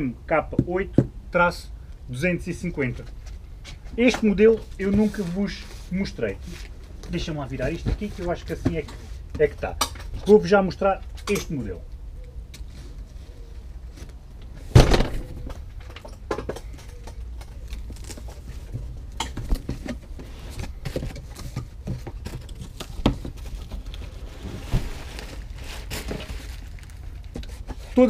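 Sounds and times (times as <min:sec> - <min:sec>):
plastic wrapping rustling: 0:16.9 - 0:28.0
cardboard flaps knocking and scraping: 0:18.0 - 0:26.4.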